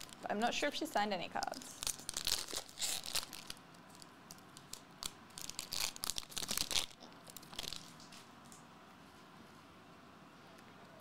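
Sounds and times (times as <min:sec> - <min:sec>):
wrapper tearing and crinkling: 0:01.6 - 0:08.1.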